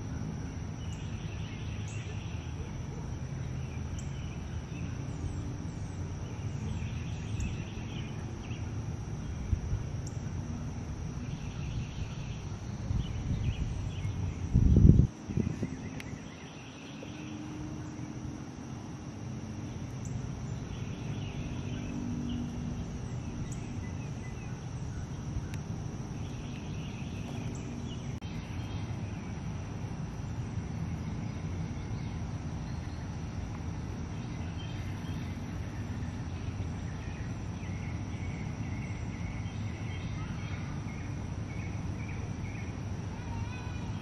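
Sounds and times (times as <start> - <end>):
high-pitched insect drone: 0.0 - 44.0
low background noise: 0.0 - 44.0
small birds chirping: 0.6 - 10.4, 11.0 - 18.3, 19.0 - 44.0.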